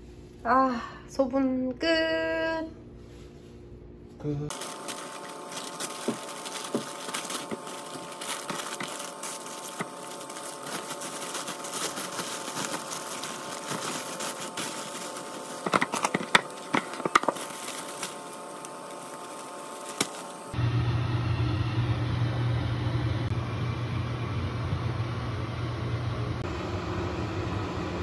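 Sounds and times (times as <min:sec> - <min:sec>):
plastic bags crinkling: 0:04.5 - 0:20.6.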